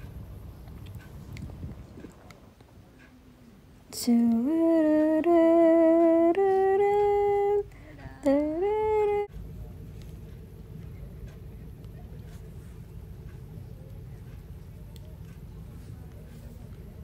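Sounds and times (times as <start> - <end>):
person humming a tune: 4.0 - 9.3.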